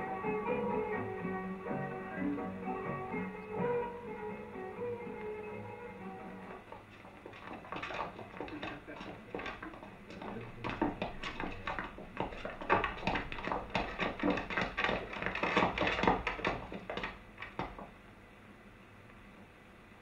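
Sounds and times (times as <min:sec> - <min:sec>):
feet shuffling: 0:03.5 - 0:18.0
wooden desks knocking: 0:06.2 - 0:18.0.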